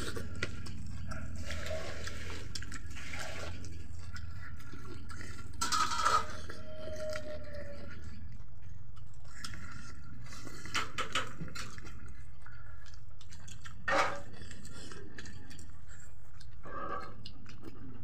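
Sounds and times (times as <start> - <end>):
chewing: 0.0 - 18.0
fingers mixing food on plates: 0.0 - 18.0.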